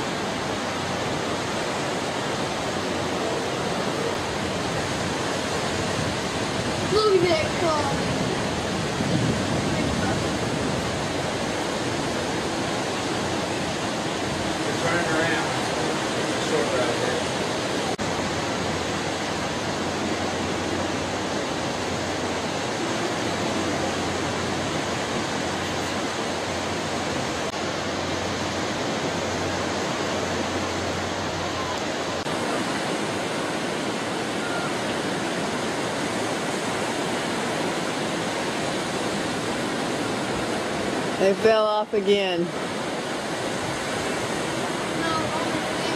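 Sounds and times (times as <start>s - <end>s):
sea surf: 0.0s - 45.9s
wind: 0.0s - 45.9s.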